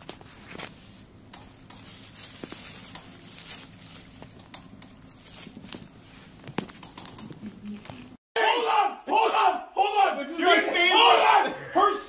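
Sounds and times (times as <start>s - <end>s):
plastic bag rustling and crinkling: 0.0s - 8.2s.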